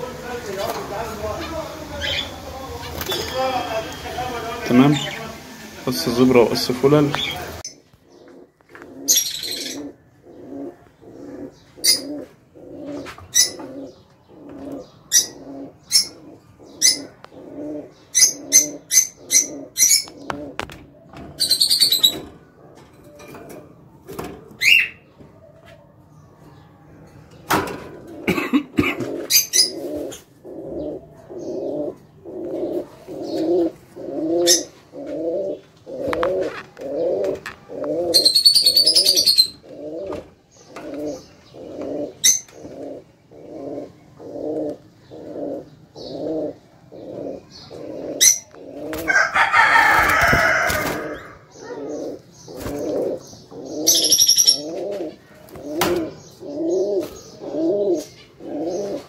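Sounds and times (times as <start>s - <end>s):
low repeated bird notes: 0.0s - 25.5s, 26.1s - 59.0s
busy high bird chatter: 0.0s - 59.0s
sharp high bird chirps: 53.8s - 54.7s.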